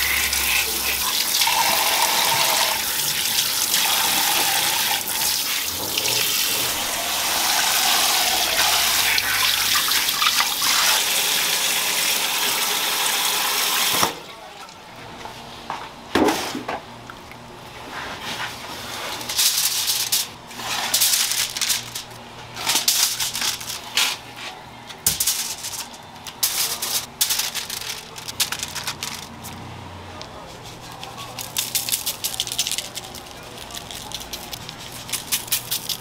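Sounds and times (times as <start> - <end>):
aluminium foil crinkling: 0.0 - 1.8, 7.7 - 10.9, 18.9 - 29.6, 30.3 - 36.0.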